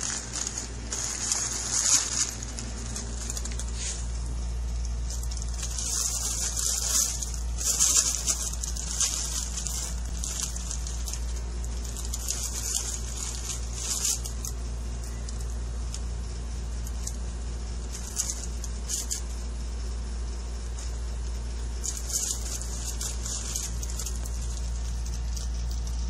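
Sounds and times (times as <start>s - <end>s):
nylon play tunnel rustling: 0.0s - 15.2s, 21.8s - 26.0s
steady low hum: 0.0s - 26.0s.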